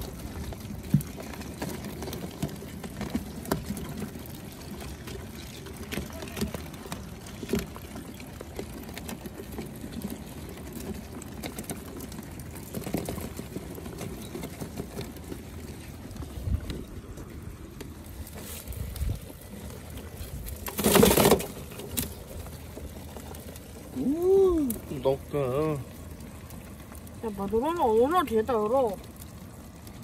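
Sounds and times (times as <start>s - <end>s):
crawfish clicking in a cooler: 0.0s - 30.0s.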